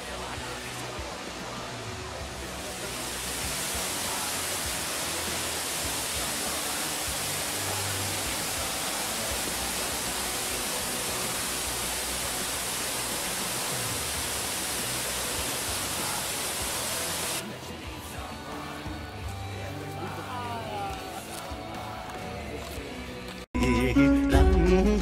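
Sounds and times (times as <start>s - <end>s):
waterfall roaring: 0.0s - 17.4s.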